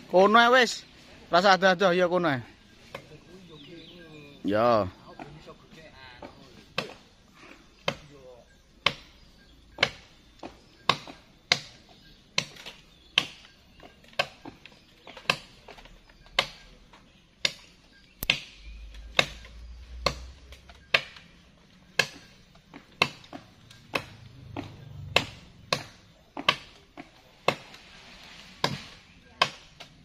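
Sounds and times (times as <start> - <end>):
blade chopping wood: 22.0 - 27.8.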